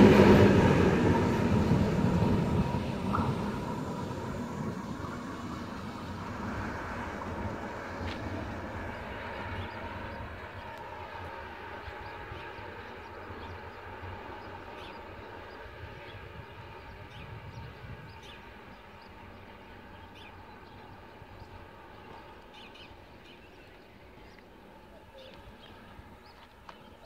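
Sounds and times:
locomotive engine rumble: 0:00.0 - 0:27.0
birds chirping: 0:08.9 - 0:27.0.

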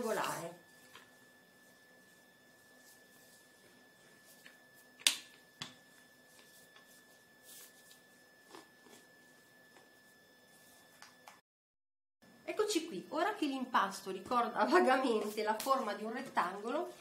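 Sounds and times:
rolling pin rolling dough: 0:00.0 - 0:11.0.

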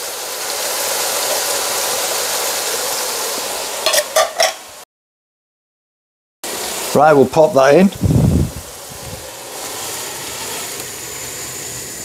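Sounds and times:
meat sizzling in a frying pan: 0:00.0 - 0:04.8, 0:06.4 - 0:12.0.

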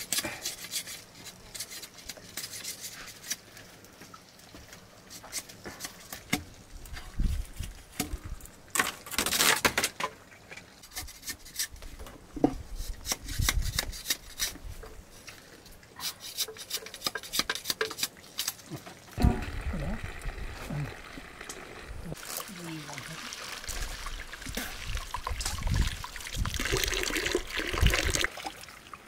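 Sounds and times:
knife splitting bamboo: 0:12.7 - 0:14.6, 0:16.0 - 0:18.6.

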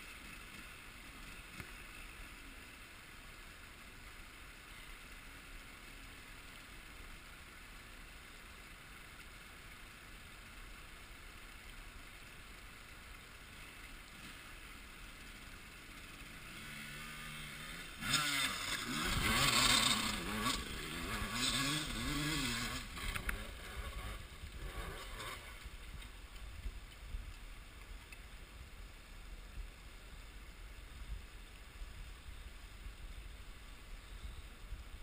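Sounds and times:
dirt bike engine revving: 0:16.0 - 0:26.0.

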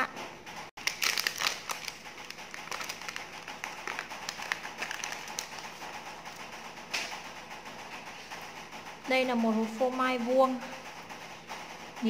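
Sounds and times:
plastic wrapper crinkling: 0:00.8 - 0:05.8.

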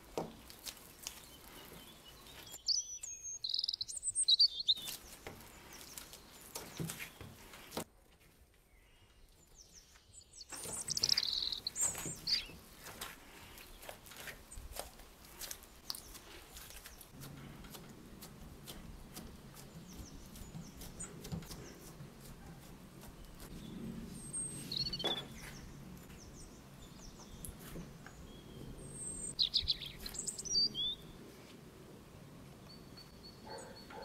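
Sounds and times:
dough squishing and patting: 0:00.0 - 0:03.2, 0:04.8 - 0:08.6, 0:10.7 - 0:26.1.

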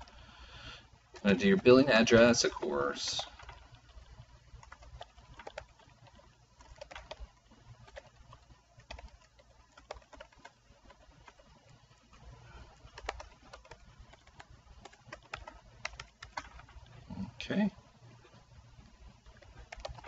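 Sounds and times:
low room rumble: 0:00.0 - 0:20.0
typing on computer keyboard: 0:03.2 - 0:11.7, 0:12.8 - 0:16.8, 0:19.3 - 0:20.0.

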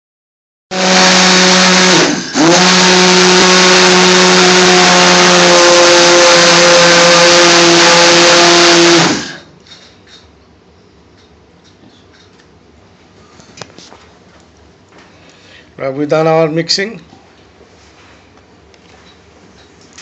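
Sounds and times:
stick blender motor: 0:00.7 - 0:09.5.

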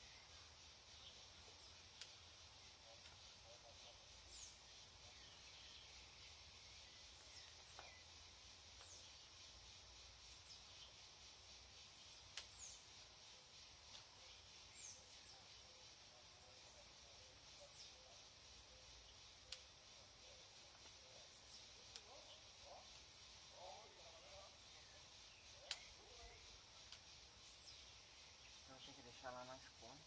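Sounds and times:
faint steady hiss: 0:00.0 - 0:30.0
small bird chirps: 0:00.0 - 0:30.0
scissors snipping twigs: 0:25.7 - 0:25.9.

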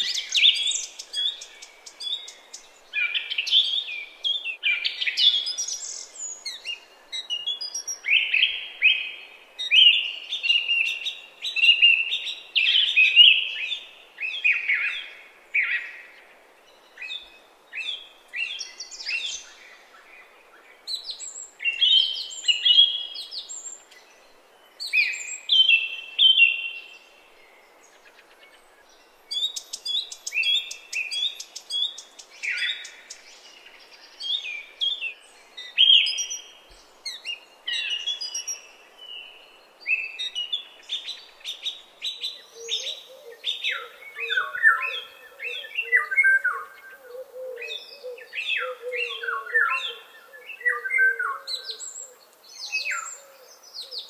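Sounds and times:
faint background hiss: 0:00.0 - 0:54.0
songbird whistling and chirping: 0:20.9 - 0:27.1, 0:29.0 - 0:54.0.

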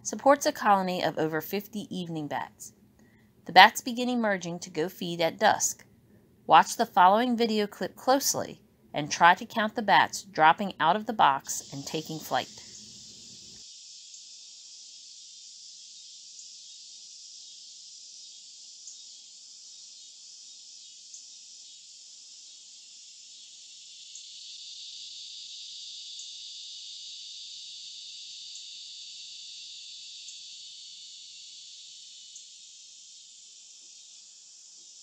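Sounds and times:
insect chorus buzzing: 0:11.3 - 0:35.0.

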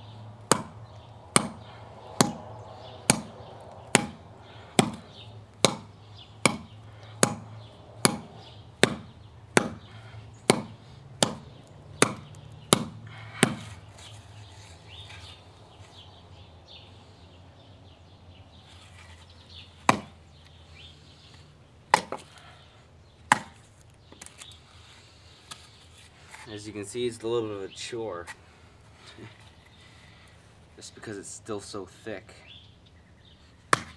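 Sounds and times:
knife chopping into wood: 0:00.5 - 0:01.6, 0:02.2 - 0:02.4, 0:03.1 - 0:04.2, 0:04.8 - 0:05.0, 0:05.6 - 0:13.8, 0:19.8 - 0:20.2, 0:21.9 - 0:22.3, 0:23.3 - 0:23.6, 0:33.7 - 0:33.9.

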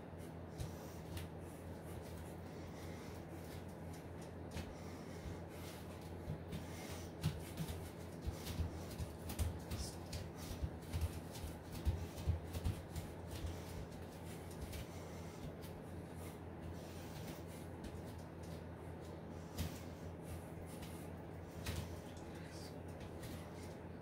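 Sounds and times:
steady low hum: 0:00.0 - 0:24.0
feet thumping on floor: 0:03.6 - 0:18.6.

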